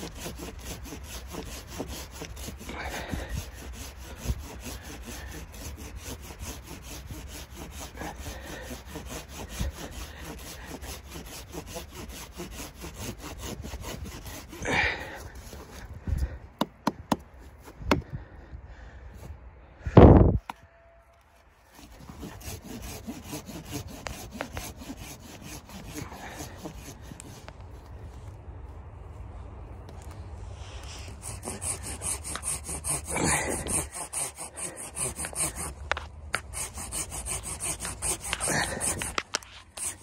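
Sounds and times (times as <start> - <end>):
hand saw cutting wood: 0.0 - 16.0, 21.7 - 27.5, 30.8 - 40.0.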